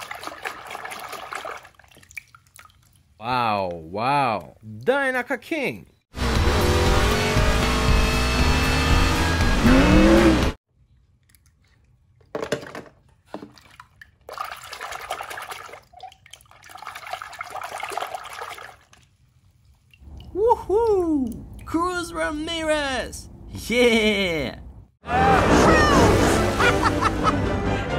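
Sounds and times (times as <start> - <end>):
hand splashing water in tub: 0.0 - 3.2, 13.2 - 19.2
crowd cheering: 25.0 - 27.6.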